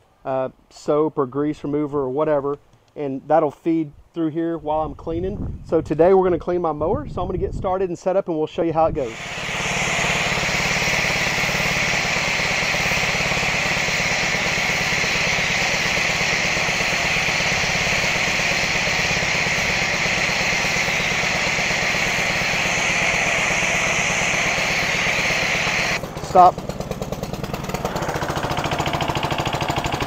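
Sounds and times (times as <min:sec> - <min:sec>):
foam spray hissing: 0:09.0 - 0:26.0
pressure washer engine running: 0:09.0 - 0:30.0.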